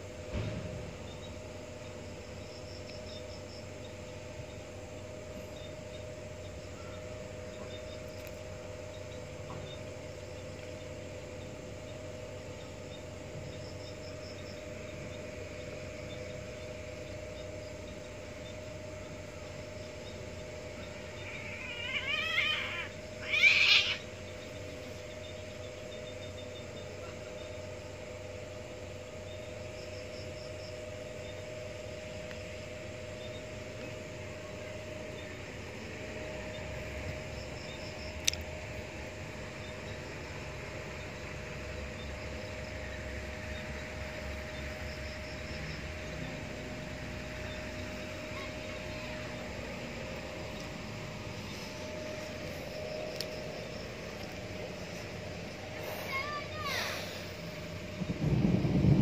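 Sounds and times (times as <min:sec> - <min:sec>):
cats yowling: 0:20.8 - 0:24.2.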